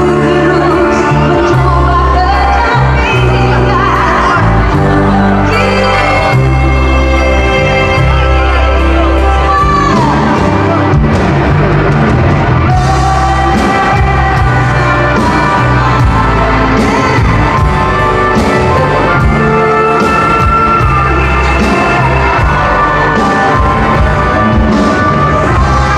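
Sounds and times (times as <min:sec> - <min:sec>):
woman singing lead: 0:00.0 - 0:11.1, 0:12.6 - 0:25.9
bass guitar: 0:00.0 - 0:25.9
electric guitar: 0:00.0 - 0:25.9
drums with steady beat: 0:09.6 - 0:25.9.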